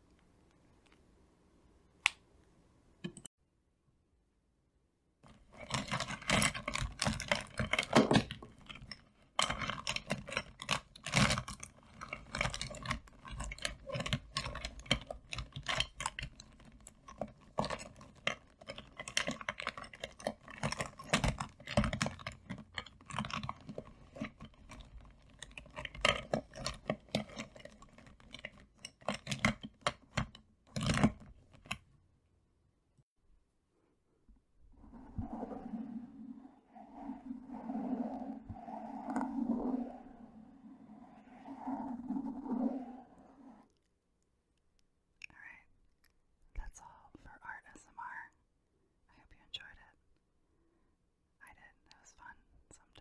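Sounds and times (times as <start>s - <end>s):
plastic pens clattering: 5.3s - 31.9s.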